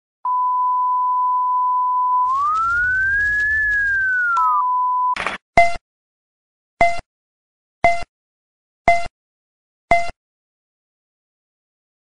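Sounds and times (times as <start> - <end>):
short noisy burst: 2.3 - 4.5
countdown beep: 6.8 - 7.1, 7.8 - 8.1, 8.9 - 9.1, 9.9 - 10.2.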